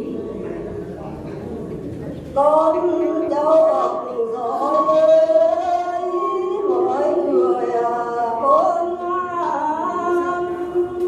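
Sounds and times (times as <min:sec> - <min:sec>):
person singing unaccompanied: 0:02.4 - 0:11.0.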